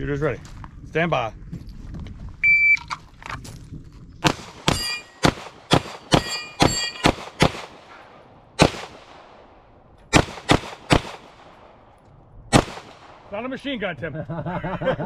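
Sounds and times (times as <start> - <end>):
handgun shots: 4.2 - 7.8, 8.6 - 9.0, 10.1 - 11.6, 12.5 - 13.1
steel plate clanging: 4.6 - 7.4.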